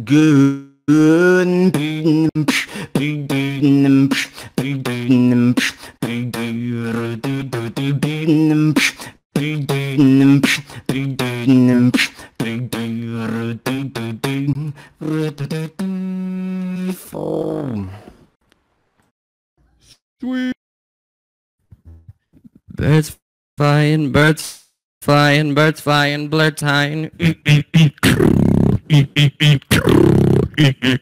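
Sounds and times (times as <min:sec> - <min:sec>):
person humming: 0:00.0 - 0:18.1, 0:27.1 - 0:31.0
vocal beatboxing: 0:01.7 - 0:17.9, 0:27.1 - 0:31.0.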